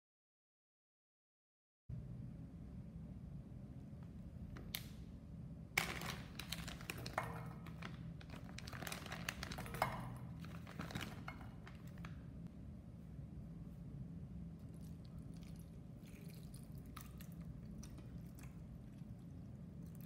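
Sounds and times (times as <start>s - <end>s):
dried mushrooms dropping into metal bowl: 5.8s - 12.1s
plastic bag crinkling: 5.8s - 12.2s.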